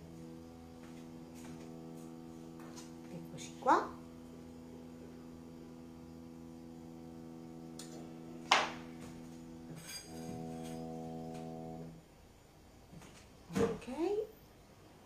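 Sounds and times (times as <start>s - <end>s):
electrical hum: 0.0s - 15.0s
tableware clinking: 9.7s - 10.9s.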